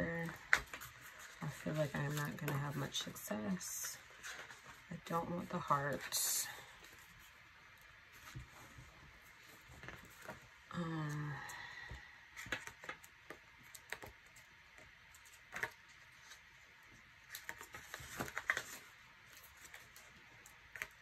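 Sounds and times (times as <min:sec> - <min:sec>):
paper pages rustling: 0:00.2 - 0:05.1, 0:17.2 - 0:21.0.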